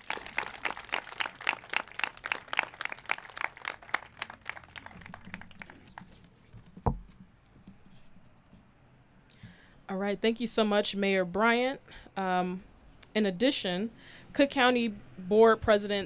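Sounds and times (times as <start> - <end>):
small group clapping: 0.0 - 6.3.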